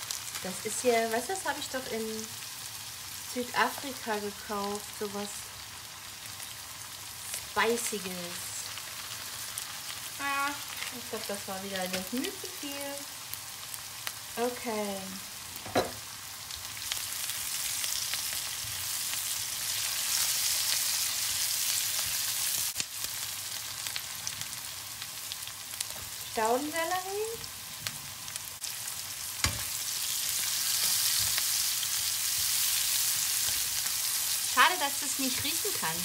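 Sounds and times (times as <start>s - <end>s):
food sizzling in a wok: 0.0s - 36.0s.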